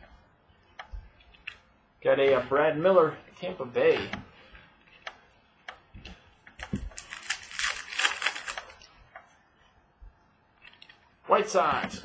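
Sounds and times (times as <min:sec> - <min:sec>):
cards flicking and rustling: 0:06.6 - 0:08.8.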